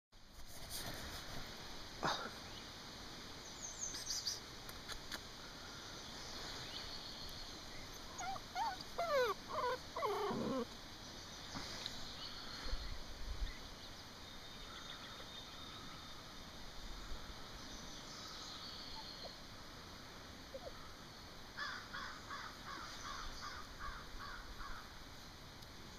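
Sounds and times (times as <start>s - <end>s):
puppy whimpering: 7.9s - 10.7s.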